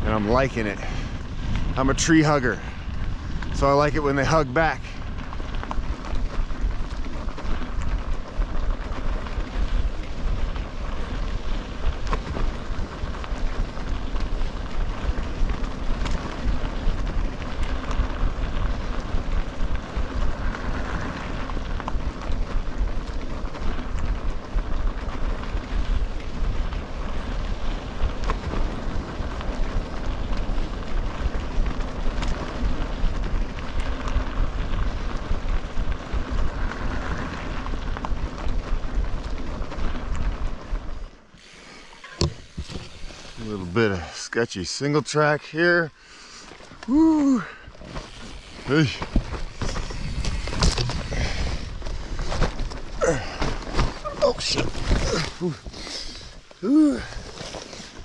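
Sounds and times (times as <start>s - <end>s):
wind buffeting microphone: 0.0s - 44.4s, 46.5s - 58.0s
tyres rolling over gravel: 0.0s - 58.0s.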